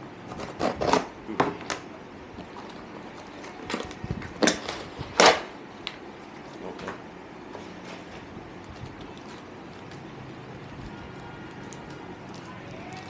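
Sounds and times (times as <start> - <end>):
packaging rustling: 7.6 - 13.0.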